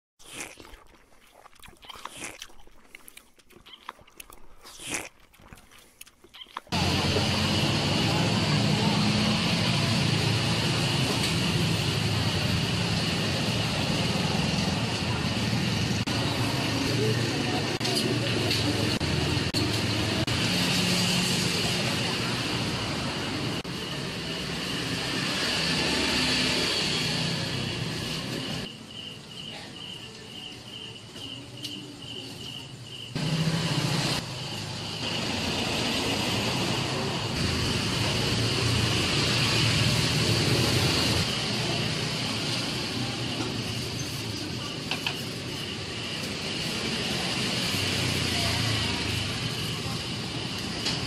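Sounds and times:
crisp crunching and crackling: 0:00.2 - 0:06.8
traffic noise: 0:06.7 - 0:51.0
background chatter: 0:11.5 - 0:20.3, 0:41.2 - 0:51.0.

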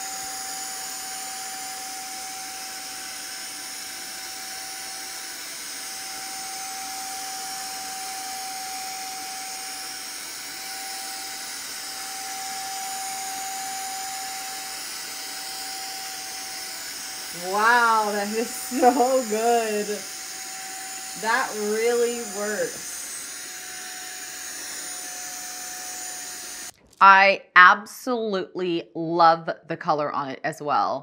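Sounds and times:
steamer whine: 0:00.0 - 0:26.7
steam hiss and suction: 0:07.8 - 0:26.7.

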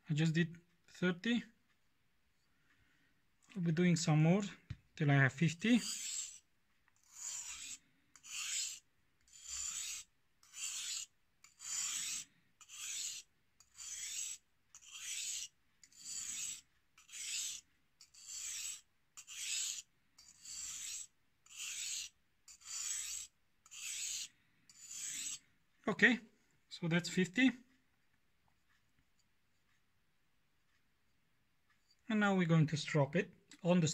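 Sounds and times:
knife scraping on whetstone: 0:05.8 - 0:06.4, 0:07.0 - 0:25.4.

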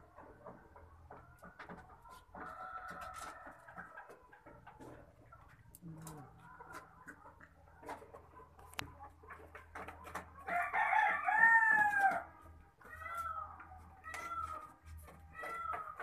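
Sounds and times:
chickens clucking: 0:00.0 - 0:16.0
rooster crowing: 0:10.5 - 0:12.2.

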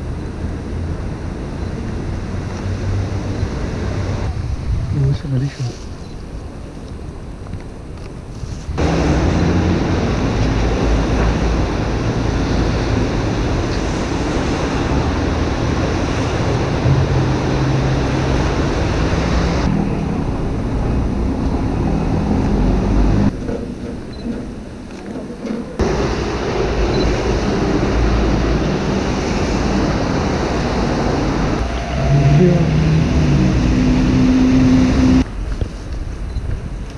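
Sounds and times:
traffic on wet street: 0:00.0 - 0:06.8, 0:08.4 - 0:23.5, 0:25.8 - 0:36.9
wind buffeting microphone: 0:00.1 - 0:36.9
low rumble: 0:08.8 - 0:23.4.

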